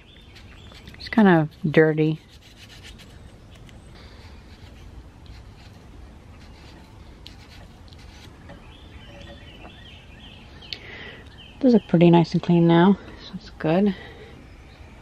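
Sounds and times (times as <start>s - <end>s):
faint rubbing and scraping: 0.3s - 3.4s, 4.0s - 9.7s.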